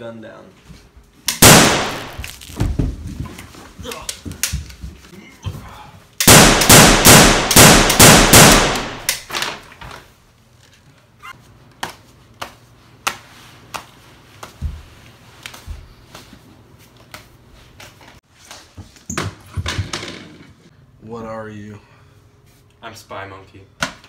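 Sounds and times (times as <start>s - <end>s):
pistol gunshots: 1.4s - 2.2s, 6.2s - 9.3s.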